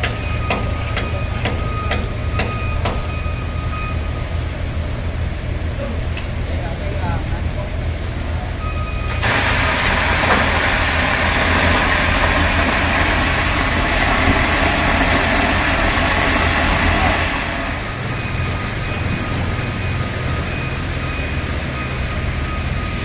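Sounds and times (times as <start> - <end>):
low engine drone: 0.0 - 23.0
high-pressure water jet hissing: 9.1 - 21.0.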